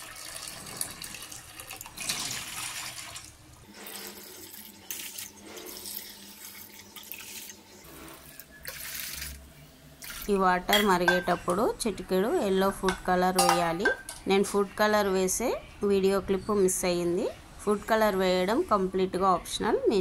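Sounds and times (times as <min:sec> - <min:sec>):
water pouring into steel bowl: 0:00.0 - 0:09.4.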